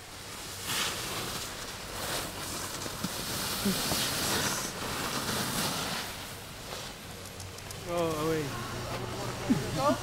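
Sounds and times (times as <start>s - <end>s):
skis hissing over snow: 0.1s - 7.1s.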